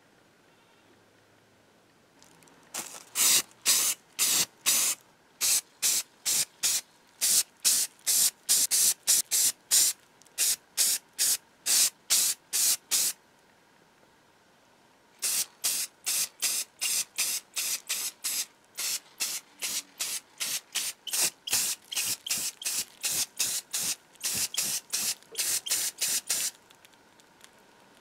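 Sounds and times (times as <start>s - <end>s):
spray paint hissing in bursts: 2.8s - 13.2s, 15.2s - 26.6s.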